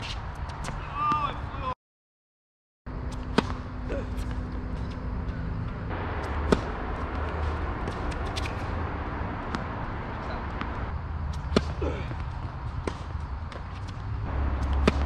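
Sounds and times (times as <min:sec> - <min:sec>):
racket striking tennis ball: 0:03.1 - 0:05.0, 0:06.0 - 0:12.2, 0:12.8 - 0:15.0
low rumble: 0:05.3 - 0:11.1
distant ball shots and bounces: 0:14.3 - 0:15.0.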